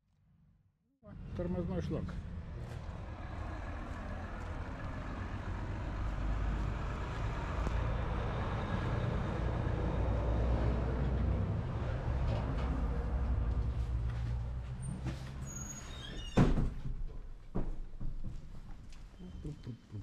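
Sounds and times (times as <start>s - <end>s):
vehicle engine rumbling: 1.1s - 15.9s.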